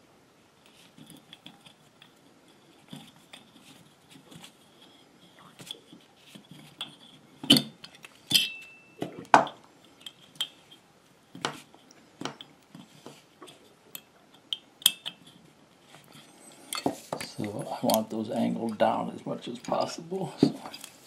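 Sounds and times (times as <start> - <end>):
metal bolts and tools clinking: 6.8 - 8.8, 19.6 - 20.9.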